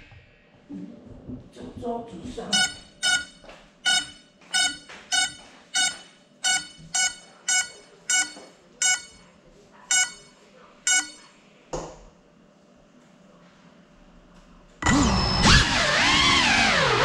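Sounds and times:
short shrill beeps: 0:02.5 - 0:09.2, 0:09.9 - 0:11.3.

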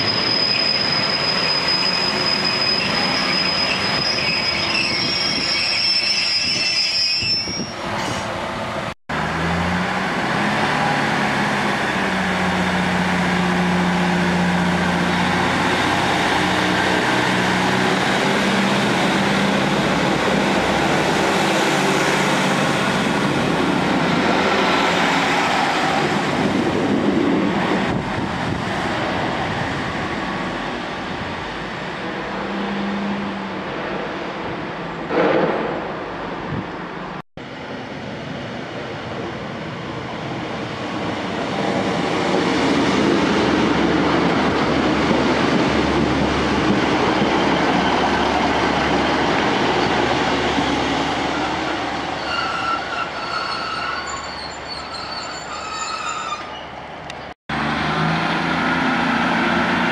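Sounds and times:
wheels and brakes squealing: 0:00.0 - 0:08.3, 0:52.1 - 0:57.2
train engine and wheels rumbling: 0:00.0 - 0:59.9.

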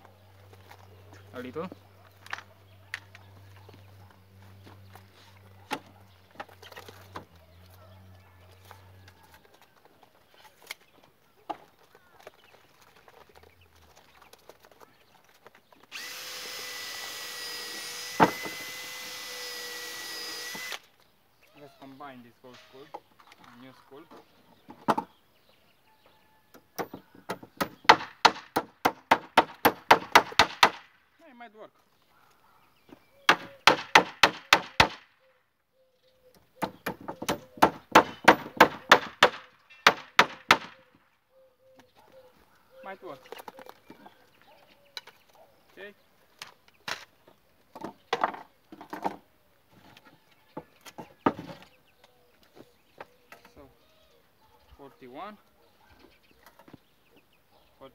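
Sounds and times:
power drill running: 0:15.9 - 0:20.9
hammer driving nails into wood: 0:17.6 - 0:19.4, 0:26.6 - 0:30.9, 0:33.3 - 0:35.0, 0:36.6 - 0:40.8.

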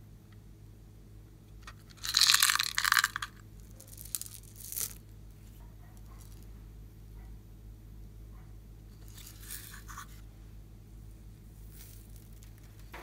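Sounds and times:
plastic beads rattling pour: 0:01.8 - 0:05.0, 0:09.1 - 0:09.8, 0:11.7 - 0:12.4.

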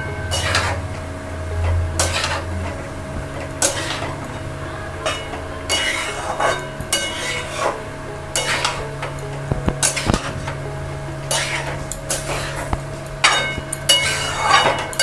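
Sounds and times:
metal spatula scraping metal pan: 0:02.0 - 0:02.5, 0:03.6 - 0:04.2, 0:05.0 - 0:08.9, 0:11.3 - 0:15.0.

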